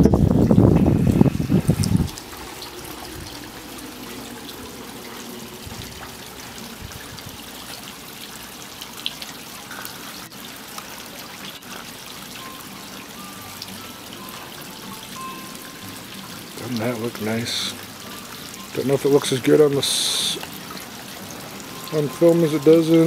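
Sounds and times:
fountain water trickling: 0:00.0 - 0:23.0.

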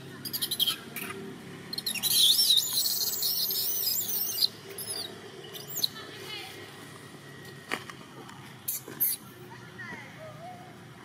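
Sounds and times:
baby monkey screaming: 0:00.2 - 0:06.0.

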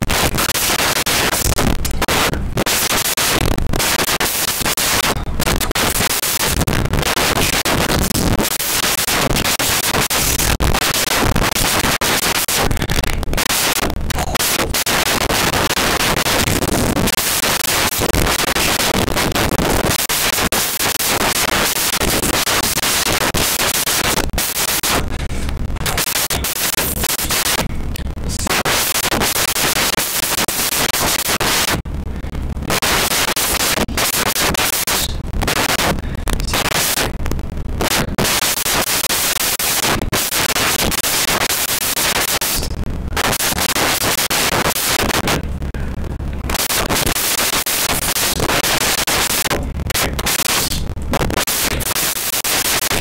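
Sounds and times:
loud harsh static noise: 0:00.0 - 0:53.0.

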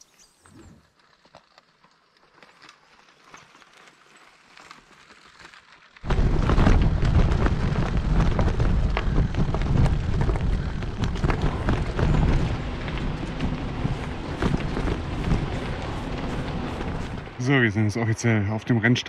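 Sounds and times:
bike rolling over gravel: 0:00.2 - 0:18.8
wind rumble on microphone: 0:06.0 - 0:17.6.

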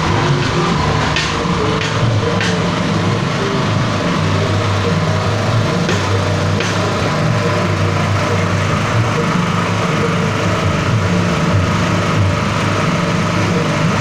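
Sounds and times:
small petrol engine running: 0:00.0 - 0:14.0.

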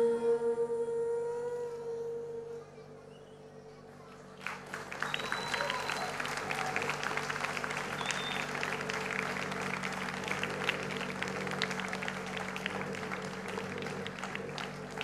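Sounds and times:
audience applauding: 0:04.2 - 0:15.0.

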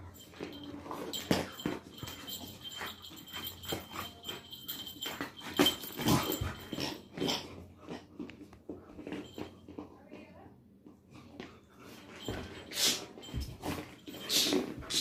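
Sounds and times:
puppy growling and snuffling: 0:00.1 - 0:08.3.

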